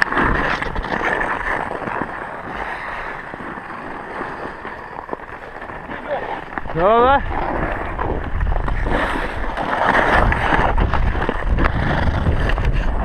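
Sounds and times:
ice skates scraping on ice: 0.0s - 13.0s
wind on microphone: 6.6s - 13.0s.

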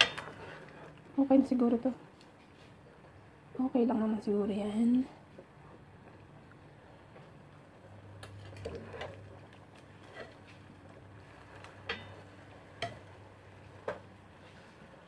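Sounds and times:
low steady hum: 0.0s - 15.0s
bubbling oil: 5.1s - 15.0s
metal skimmer clinking on pot: 11.8s - 12.2s.

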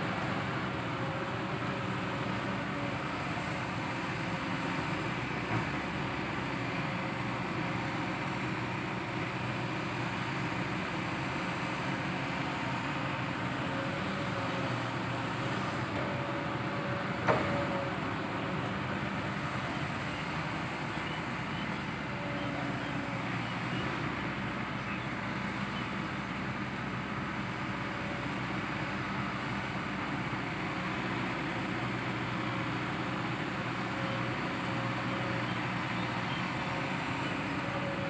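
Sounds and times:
excavator diesel engine running: 0.0s - 38.0s.

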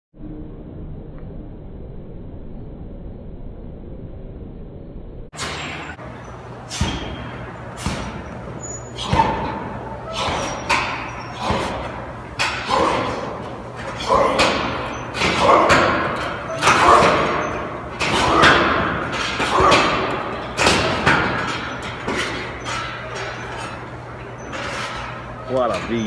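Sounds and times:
punches and kicks on punching bag: 6.7s - 12.0s.

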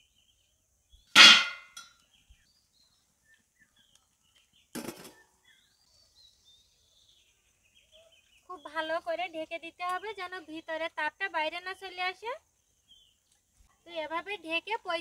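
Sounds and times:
metal tin clanging down: 1.2s - 1.9s
steel lid clattering: 1.2s - 1.9s.

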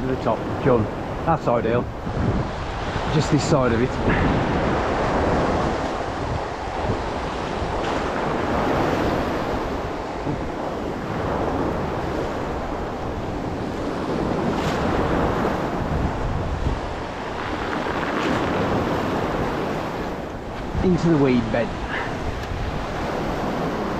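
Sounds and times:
wind buffeting microphone: 0.0s - 23.9s
sea waves sloshing: 0.4s - 23.9s.

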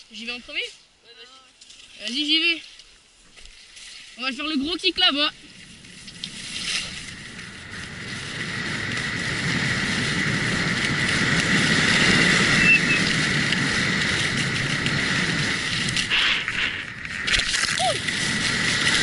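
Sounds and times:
skis scraping over snow: 3.6s - 19.0s
wind on microphone: 4.7s - 19.0s.

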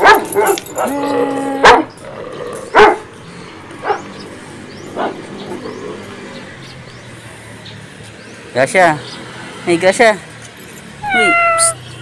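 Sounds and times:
dog barking: 0.0s - 1.0s, 1.6s - 2.0s, 2.7s - 3.1s, 3.8s - 4.1s, 5.0s - 5.3s.

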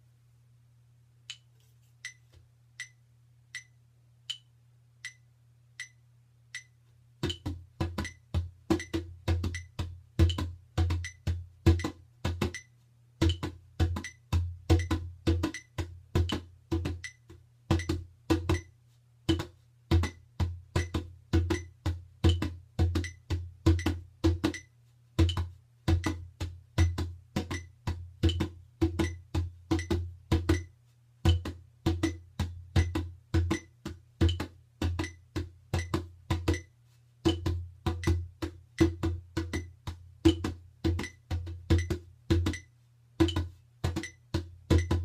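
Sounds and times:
metronome clicking: 1.2s - 16.4s, 17.0s - 18.7s, 23.0s - 24.7s, 29.0s - 30.7s, 35.8s - 36.7s, 40.3s - 45.0s
djembe drumming: 13.2s - 17.0s, 19.3s - 24.6s, 25.2s - 30.6s, 31.2s - 36.6s, 37.3s - 42.6s, 43.2s - 45.0s.

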